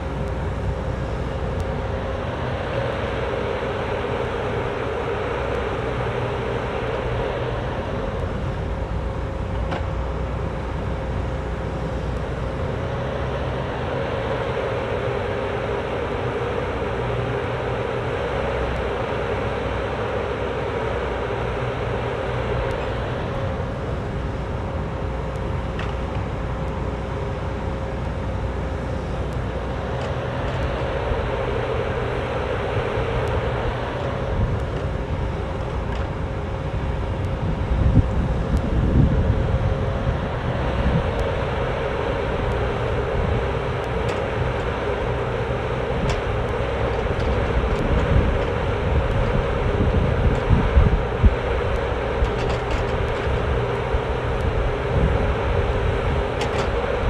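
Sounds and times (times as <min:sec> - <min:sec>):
excavator diesel engine running: 0:00.0 - 0:57.0.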